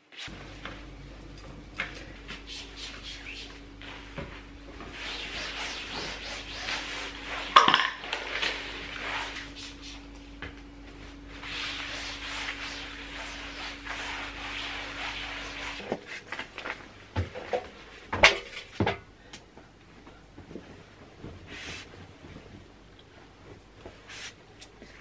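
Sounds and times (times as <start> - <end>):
steady low hum: 0.1 - 25.0
cloth wiping foam mat: 2.3 - 7.6, 8.2 - 10.1, 10.9 - 16.4, 21.3 - 22.5
objects knocking and clattering: 7.6 - 8.0.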